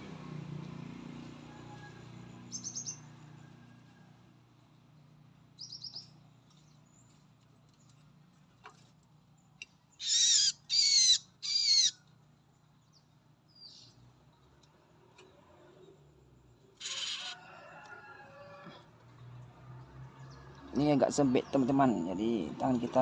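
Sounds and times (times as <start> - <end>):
high bird chirps: 2.5 - 3.0, 5.6 - 6.1, 10.0 - 12.0
small bird distress calls: 10.0 - 12.0, 16.8 - 17.4.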